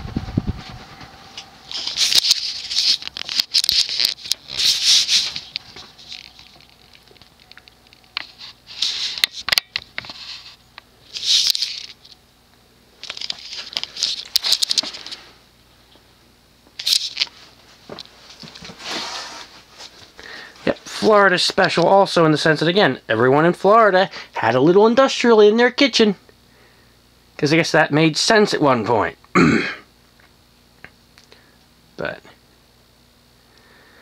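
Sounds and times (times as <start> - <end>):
rustling and crackling: 0.0 - 12.2, 13.0 - 16.0
ceiling fan coasting down: 0.0 - 29.4.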